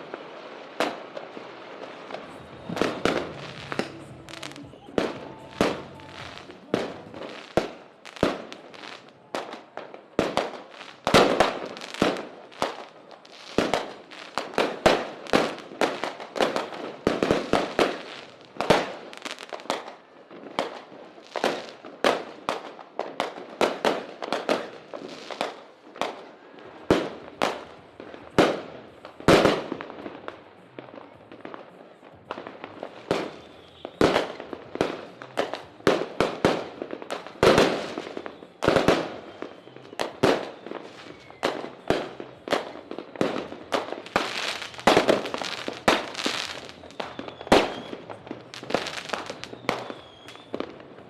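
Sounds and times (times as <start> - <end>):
fireworks bangs: 0.0 - 51.0.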